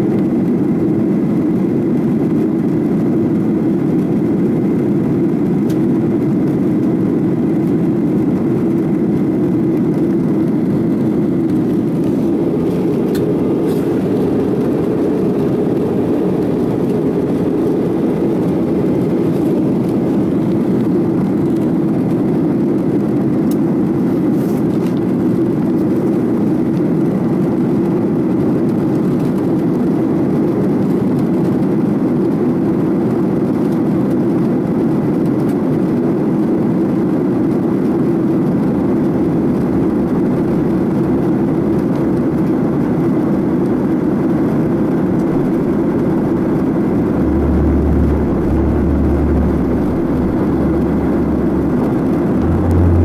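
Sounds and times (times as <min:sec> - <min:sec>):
jet cabin noise roar: 0:00.0 - 0:53.0
deeper rumble: 0:10.0 - 0:22.1, 0:37.5 - 0:53.0.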